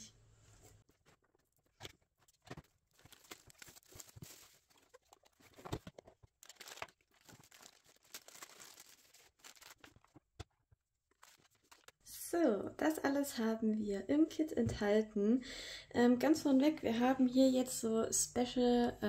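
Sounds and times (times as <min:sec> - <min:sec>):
packaging crinkling and rustling: 0:00.9 - 0:12.0.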